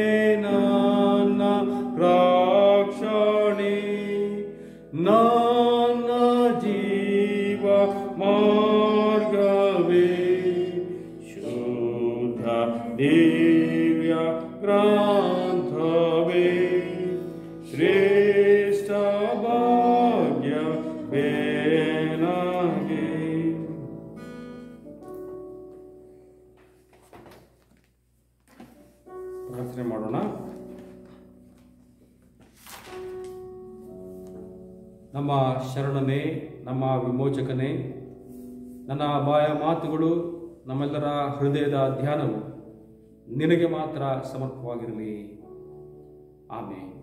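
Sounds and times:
man singing a hymn: 0:00.0 - 0:24.0, 0:35.2 - 0:37.9, 0:38.8 - 0:42.6.

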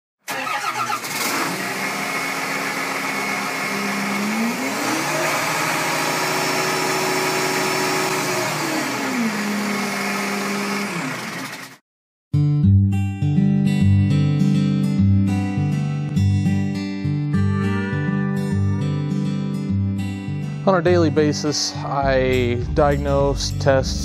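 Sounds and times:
engine running and revving: 0:00.4 - 0:11.8.

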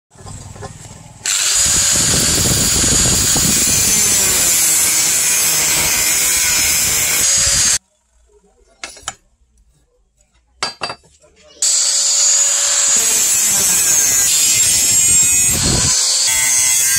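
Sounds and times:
angle grinder cutting steel: 0:01.2 - 0:07.8, 0:11.6 - 0:16.9.

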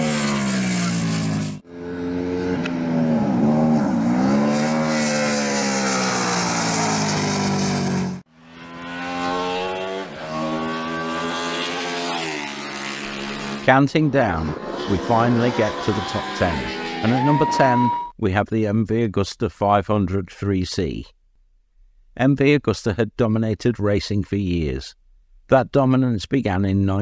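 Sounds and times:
racing motorcycle engine: 0:00.0 - 0:18.1.

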